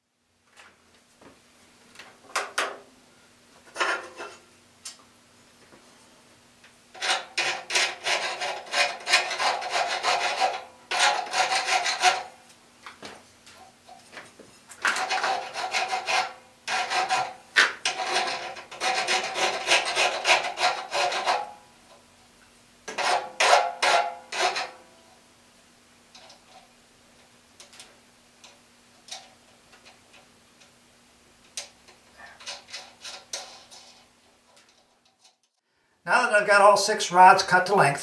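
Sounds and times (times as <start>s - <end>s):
hacksaw cutting metal rod: 7.0s - 12.4s, 14.8s - 21.6s, 22.9s - 24.8s.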